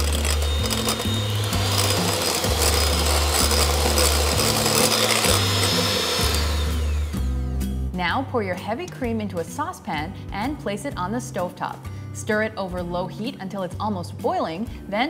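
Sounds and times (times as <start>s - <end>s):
electric hand mixer whirring: 0.0s - 7.5s
background music with bass: 0.0s - 13.2s.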